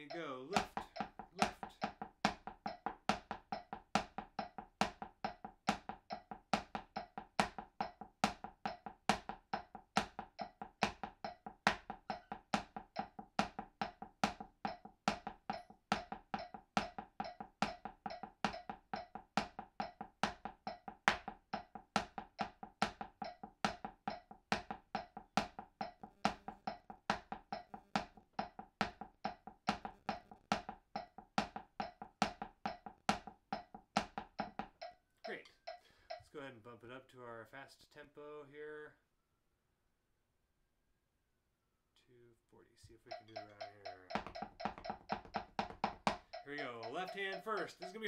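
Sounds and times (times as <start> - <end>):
metronome clicking: 0.0 - 2.0, 6.1 - 6.3, 10.4 - 12.3, 14.7 - 19.2, 19.8 - 21.7, 23.2 - 24.3, 34.3 - 36.3, 43.1 - 48.0
drumsticks on practice pad: 0.0 - 36.4, 43.1 - 48.0.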